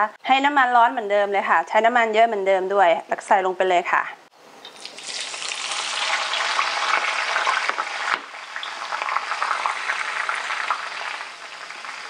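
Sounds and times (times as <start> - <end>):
leaves deep-frying in hot oil: 4.7 - 12.0.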